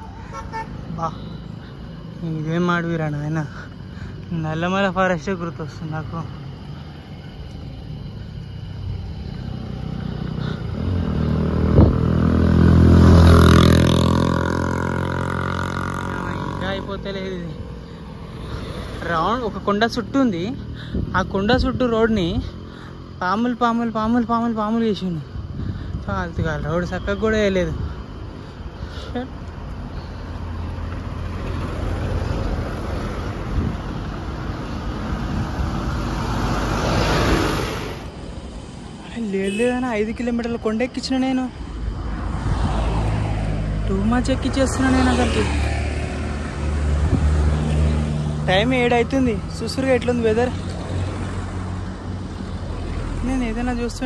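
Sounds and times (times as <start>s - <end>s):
road noise: 0.0s - 54.0s
vehicle passing by: 8.0s - 21.1s, 29.6s - 39.6s, 40.9s - 54.0s
wind buffeting microphone: 11.5s - 12.3s, 25.3s - 26.8s, 33.1s - 38.4s, 46.5s - 47.6s.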